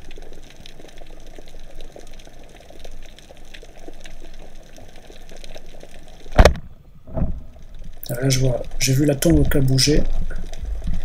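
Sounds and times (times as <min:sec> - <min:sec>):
underwater crackling clicks: 0:00.0 - 0:11.0
low underwater rumble: 0:06.4 - 0:11.0.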